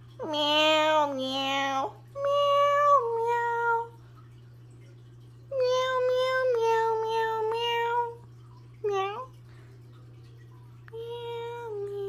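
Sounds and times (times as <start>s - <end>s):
person singing meow notes: 0.2s - 4.0s, 5.5s - 8.2s, 10.9s - 12.0s.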